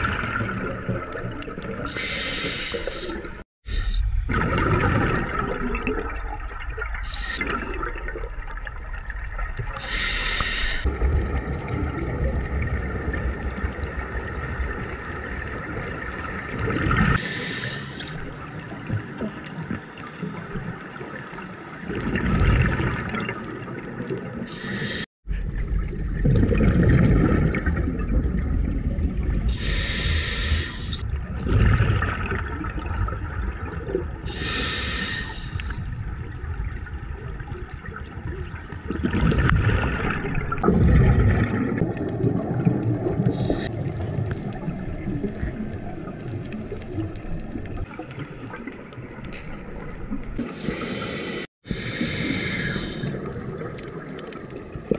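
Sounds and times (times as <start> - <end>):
exhaled bubbles gurgling: 0.0 - 54.9
scuba regulator hissing inhalations: 1.9 - 4.0, 9.8 - 10.9, 17.2 - 18.1, 24.5 - 25.1, 29.5 - 31.0, 34.3 - 35.7, 50.5 - 53.2.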